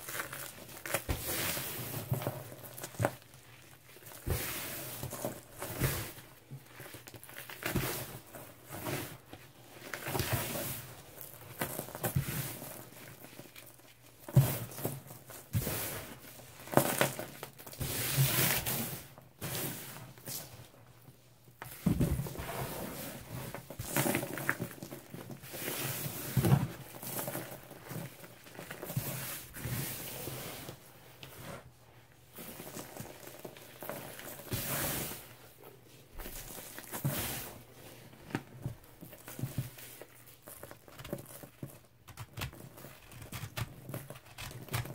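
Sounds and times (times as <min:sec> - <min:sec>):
powder sifting through fingers: 0:00.0 - 0:20.8, 0:21.5 - 0:44.9
hands crushing dried powder slab: 0:38.3 - 0:44.9.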